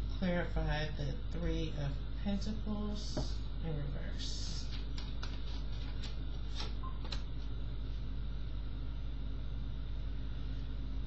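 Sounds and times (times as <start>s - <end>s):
low background hum: 0.0s - 11.0s
cards clicking and tapping: 4.7s - 7.3s.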